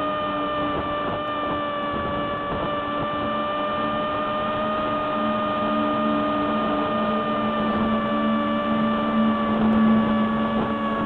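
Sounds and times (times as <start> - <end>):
electric motor propeller whine: 0.0 - 11.0
wind noise: 0.6 - 5.6.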